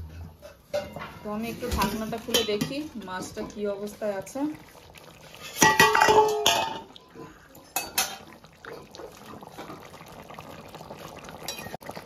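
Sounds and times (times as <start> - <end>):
metal pot lid clattering: 0.3 - 3.6, 5.5 - 7.0, 7.8 - 8.9
curry bubbling: 0.3 - 12.0.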